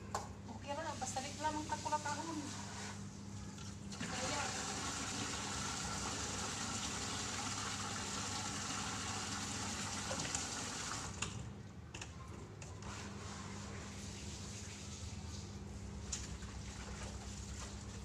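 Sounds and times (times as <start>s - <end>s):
water running from a tap: 3.9s - 11.2s.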